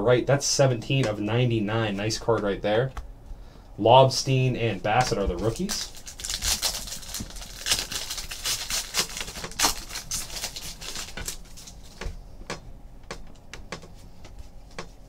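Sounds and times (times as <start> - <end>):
wrapper crinkling: 5.4 - 12.0.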